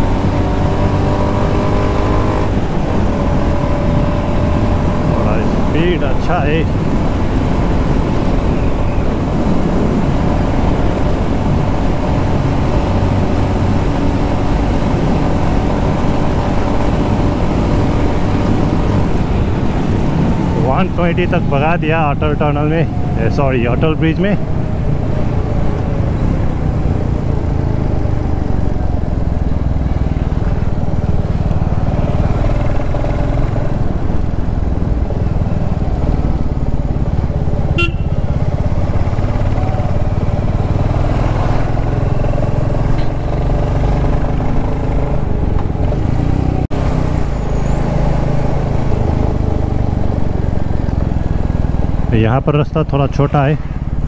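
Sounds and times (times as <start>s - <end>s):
motorcycle engine running: 24.1s - 47.2s.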